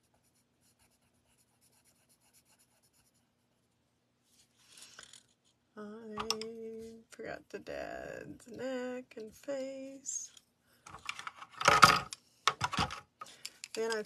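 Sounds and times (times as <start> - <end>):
coloured pencil scratching on paper: 0.0 - 3.4
hand and pencils rustling: 0.0 - 7.3, 8.1 - 14.0
woman speaking: 5.8 - 10.4, 13.7 - 14.0.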